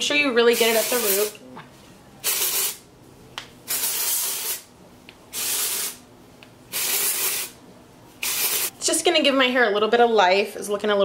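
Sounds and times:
aerosol spray hiss: 0.6s - 1.3s, 5.4s - 6.0s, 6.7s - 7.6s, 8.2s - 8.7s.

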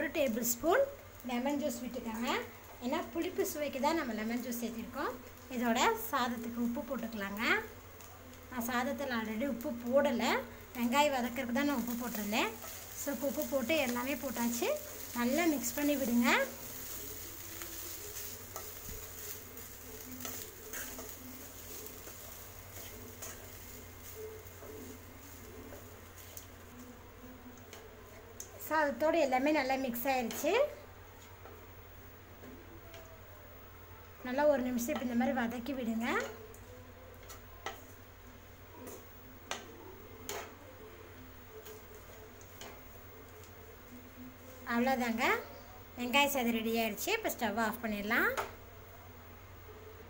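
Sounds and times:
spatula scraping pan: 10.8s - 26.3s.

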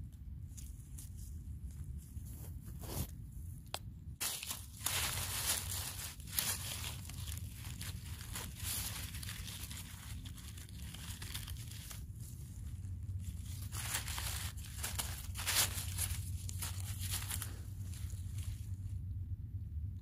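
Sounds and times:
low rumble: 3.2s - 20.0s
dry leaves rustling and crackling: 4.2s - 19.0s.

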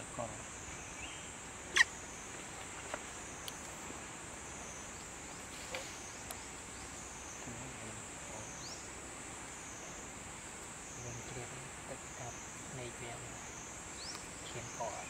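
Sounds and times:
faint chirps and clicks: 0.7s - 3.8s, 4.5s - 7.6s, 9.8s - 11.5s, 12.2s - 15.0s.

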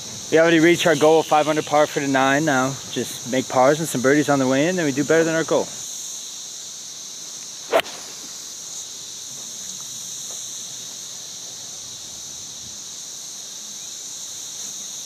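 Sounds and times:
insects droning: 0.0s - 15.0s
golf club striking ball: 7.7s - 8.3s.

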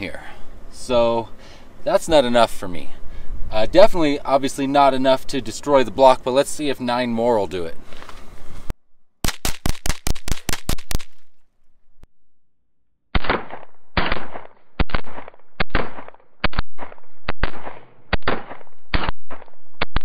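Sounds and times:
rapid rifle shots: 9.2s - 11.2s, 13.2s - 19.9s.

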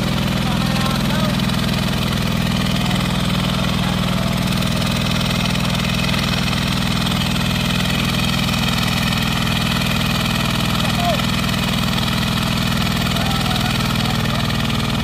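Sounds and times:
hand tractor engine running: 0.0s - 15.0s.

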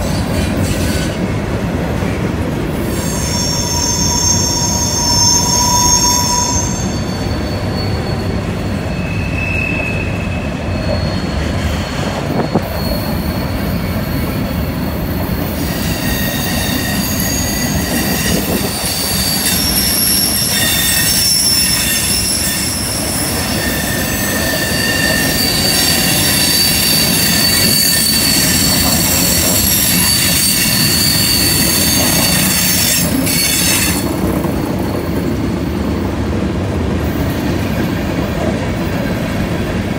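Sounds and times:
freight wheels rumbling on rail: 0.0s - 39.9s
wheel squeal: 2.8s - 35.6s.

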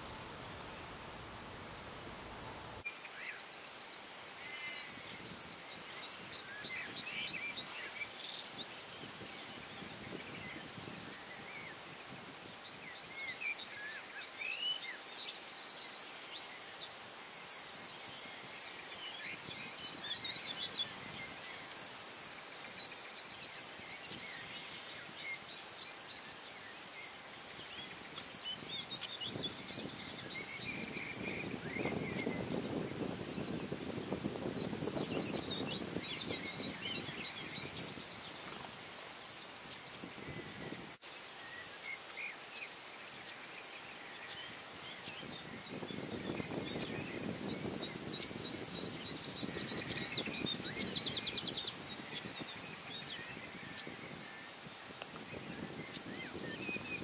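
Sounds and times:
steady hiss: 0.0s - 57.0s
bird song with high notes: 12.6s - 57.0s.

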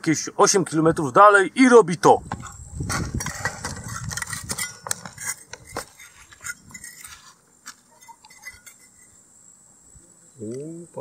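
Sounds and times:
metal spade digging stony ground: 2.4s - 9.1s.

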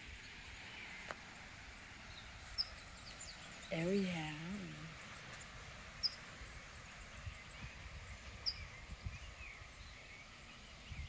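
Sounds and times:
faint bird twittering: 0.0s - 11.0s
sharp high bird chirps: 2.5s - 3.9s, 6.0s - 6.3s.

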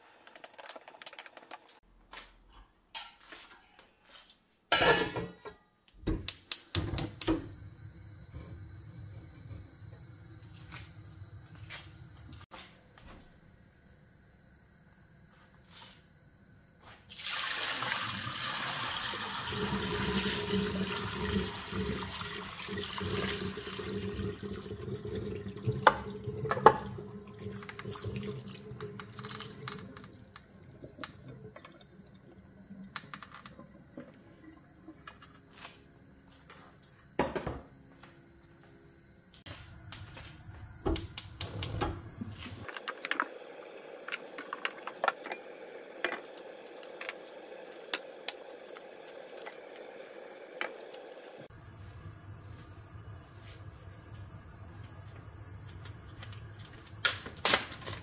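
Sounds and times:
water pouring into a sink: 17.1s - 35.1s.

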